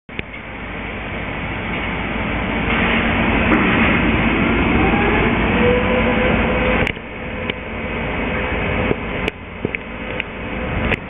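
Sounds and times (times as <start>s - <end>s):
whine rising in pitch: 3.2s - 11.0s.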